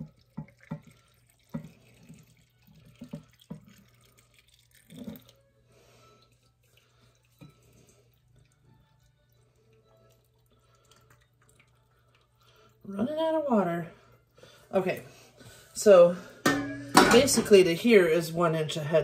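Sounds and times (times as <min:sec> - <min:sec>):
hot water pouring into jars: 0:00.0 - 0:14.8.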